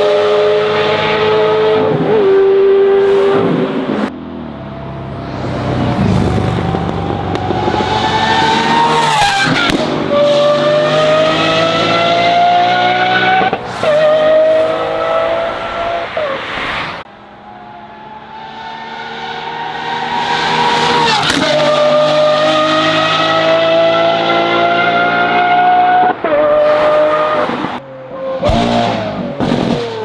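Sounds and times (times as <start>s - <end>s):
car engine accelerating hard: 4.8s - 16.1s, 17.9s - 27.7s.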